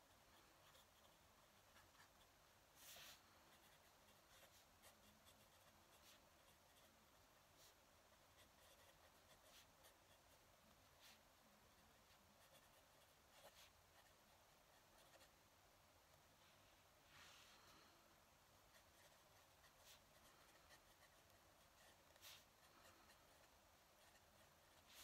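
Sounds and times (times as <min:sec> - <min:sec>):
pen nib scratching on paper: 0:00.0 - 0:07.0, 0:07.6 - 0:10.4, 0:11.8 - 0:15.4, 0:18.7 - 0:25.0
hand rustling on paper: 0:01.7 - 0:06.3, 0:10.9 - 0:11.2, 0:18.8 - 0:23.5, 0:24.1 - 0:25.0.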